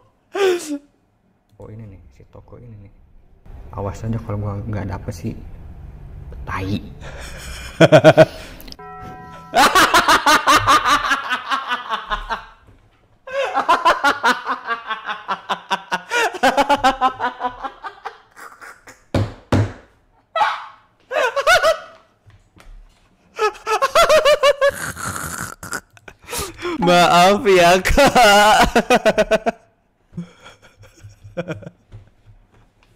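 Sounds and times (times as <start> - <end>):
man laughing hard: 7.0 - 8.5, 9.5 - 12.6, 13.3 - 19.1, 21.1 - 22.0, 23.4 - 27.0, 27.8 - 29.6, 30.2 - 31.8.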